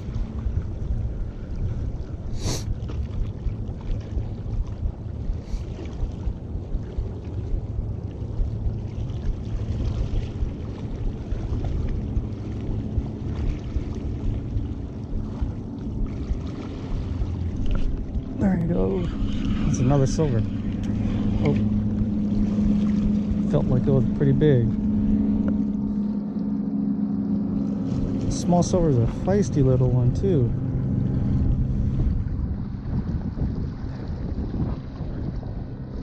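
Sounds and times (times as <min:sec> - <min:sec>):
wind rumbling on microphone: 0:00.0 - 0:36.0.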